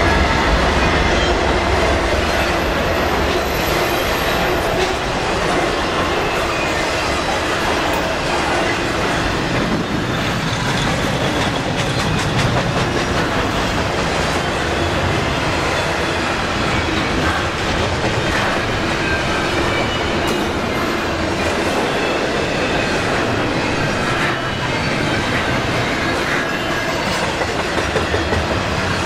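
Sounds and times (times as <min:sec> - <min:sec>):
steel wheels rolling on rail: 0:00.0 - 0:29.0
train clicks and clatter: 0:00.0 - 0:29.0.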